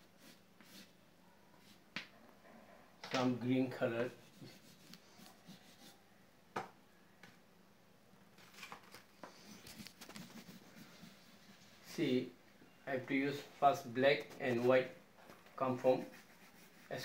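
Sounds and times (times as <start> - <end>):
colouring strokes on paper: 4.0 - 6.0, 9.3 - 12.0, 15.8 - 17.0.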